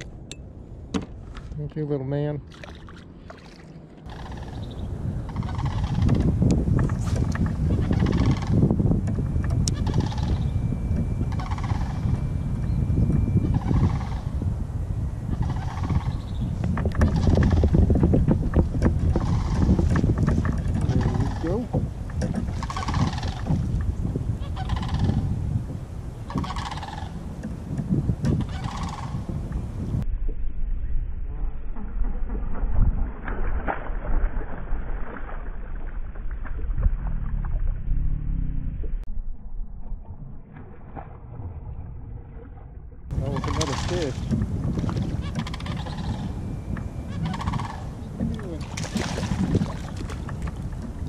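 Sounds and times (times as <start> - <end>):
wind rumbling on microphone: 0.0 - 51.0
animal calls in background: 4.0 - 6.2, 9.7 - 12.2, 13.4 - 14.4, 26.3 - 27.2, 45.1 - 48.6
fish splashing at surface: 48.6 - 50.3.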